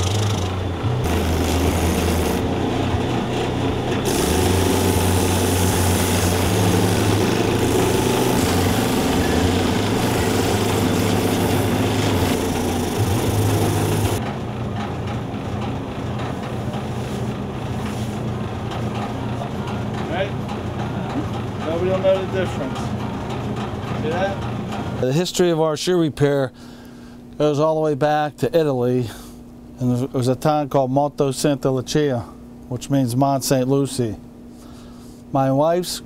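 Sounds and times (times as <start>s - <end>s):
rough grinding on sanding wheel: 0.0s - 2.4s, 4.0s - 14.2s
machine motor humming: 0.0s - 14.2s.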